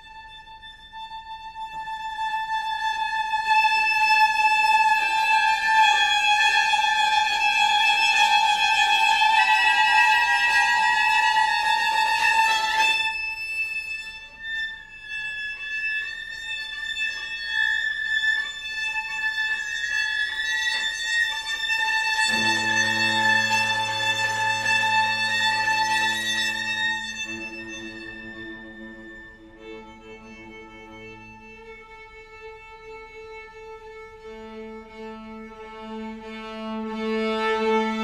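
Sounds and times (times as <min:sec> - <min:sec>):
bowed strings high held notes: 0:21.0 - 0:38.0
cello low held note: 0:22.2 - 0:31.5.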